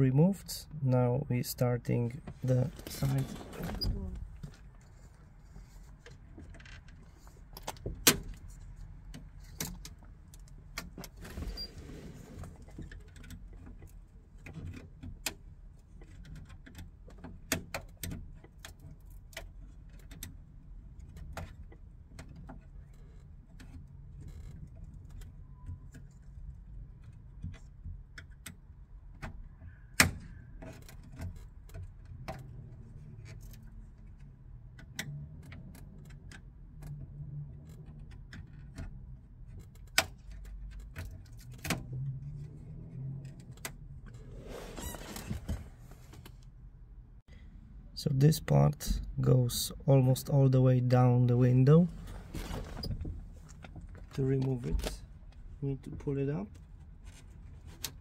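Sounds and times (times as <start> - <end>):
scraping rustle: 44.1 - 46.3.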